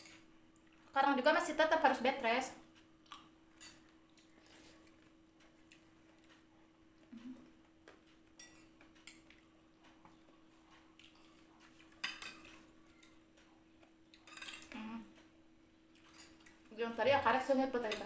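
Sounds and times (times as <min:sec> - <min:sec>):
spoons clinking on bowls: 0:03.6 - 0:03.9, 0:08.4 - 0:09.3, 0:11.9 - 0:13.2, 0:14.2 - 0:14.7.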